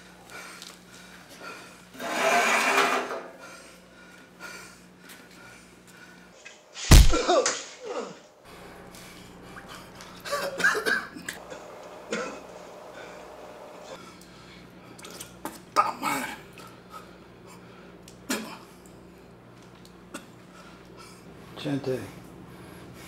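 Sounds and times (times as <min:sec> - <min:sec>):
sharp smacking blow: 0:06.8 - 0:07.8.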